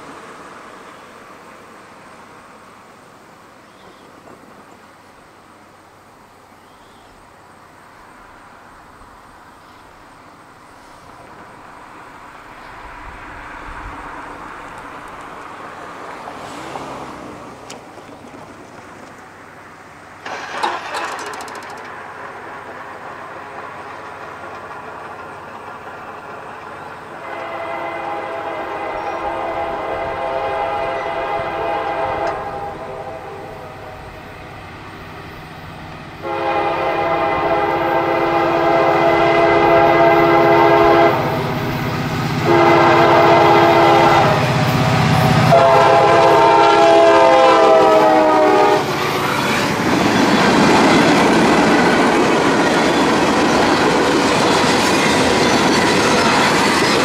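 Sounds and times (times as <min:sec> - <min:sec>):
diesel locomotive rumbling: 0:00.0 - 0:57.0
train horn blasts: 0:27.2 - 0:34.1, 0:36.2 - 0:41.6, 0:42.4 - 0:49.8.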